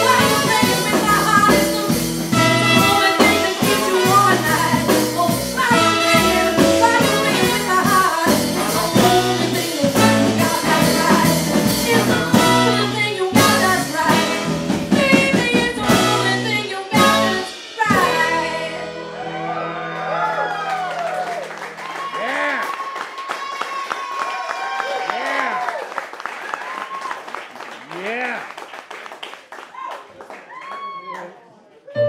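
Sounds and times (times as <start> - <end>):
jazz-blues band playing: 0.0 - 22.8.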